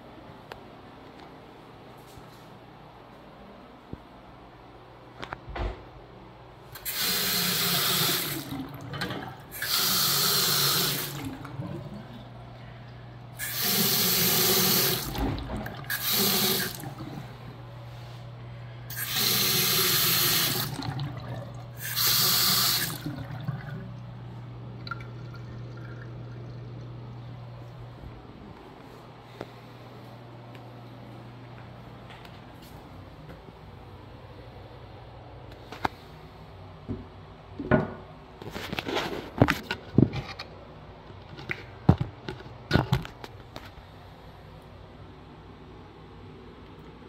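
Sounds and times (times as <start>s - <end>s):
steady low hum: 0.0s - 42.7s
faucet water running into sink: 6.8s - 12.0s, 13.4s - 17.2s, 18.9s - 24.0s.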